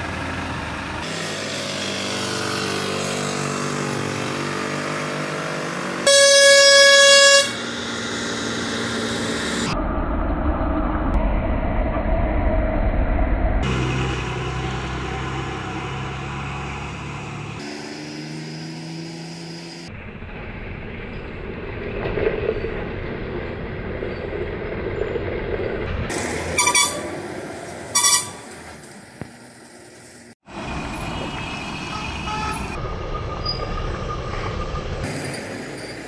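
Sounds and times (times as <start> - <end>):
truck engines labouring: 0.0 - 10.9, 13.6 - 36.0
vehicle horn blasts: 6.0 - 8.0, 26.5 - 27.2, 27.9 - 28.5, 31.9 - 32.8.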